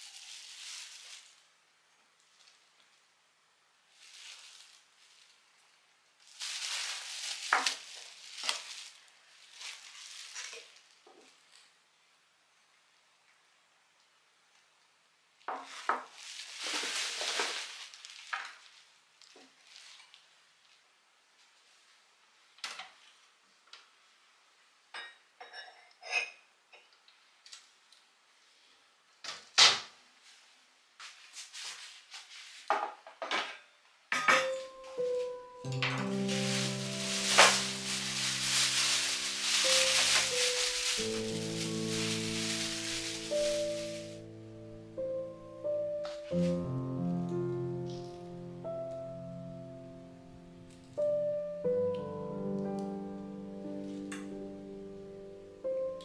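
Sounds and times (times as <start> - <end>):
bubble wrap rustling: 0.0 - 11.7, 15.4 - 22.2, 30.2 - 32.8, 34.5 - 51.0
kitchenware clinking: 25.0 - 26.4, 33.2 - 34.9.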